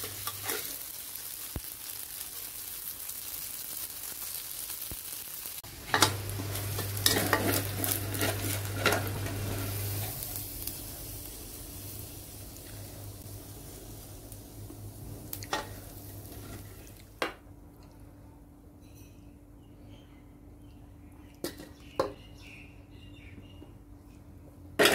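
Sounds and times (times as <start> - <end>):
food sizzling in a wok: 0.0 - 17.2
spatula scraping a wok: 5.9 - 10.2.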